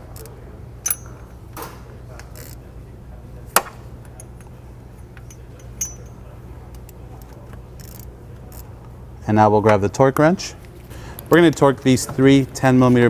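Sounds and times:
steady low hum: 0.0s - 13.0s
ratchet clicking on metal: 2.3s - 2.6s, 7.8s - 8.7s.

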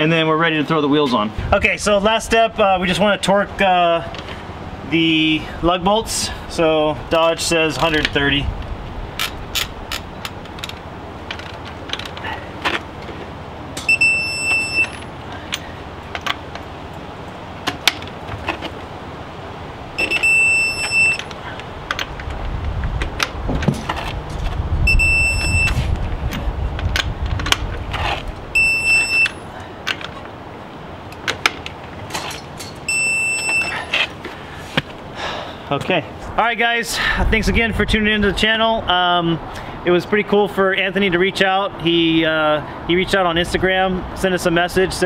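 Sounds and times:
electronic beep: 13.8s - 15.1s, 20.0s - 21.3s, 24.9s - 25.8s, 28.6s - 29.4s, 32.9s - 33.8s.

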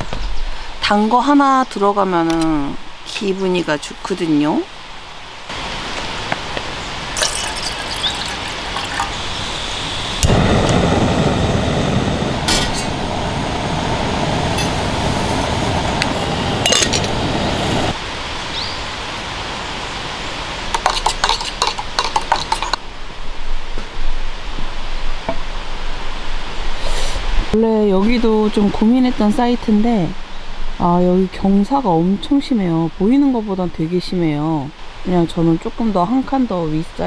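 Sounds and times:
metal mug and kettle clinking: 7.2s - 9.2s, 16.6s - 17.1s, 20.7s - 22.8s
steady rushing noise: 9.2s - 27.6s
spoon stirring in mug: 20.7s - 22.8s.

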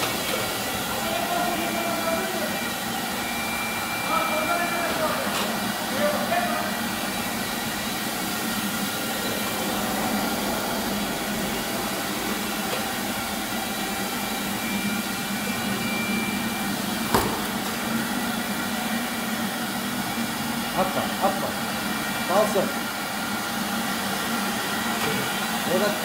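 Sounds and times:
carpet washing machine humming: 0.0s - 26.0s
sharp knock: 17.1s - 17.6s.

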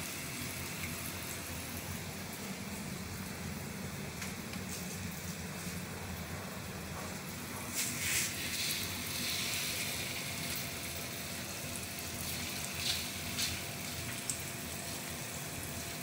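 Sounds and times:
batter sizzling in hot oil: 0.0s - 16.0s
sharp oil crackles: 0.1s - 16.0s.

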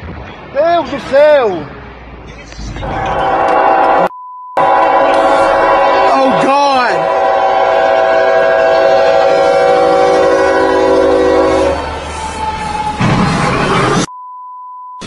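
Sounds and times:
train air horn blaring: 2.9s - 12.4s.

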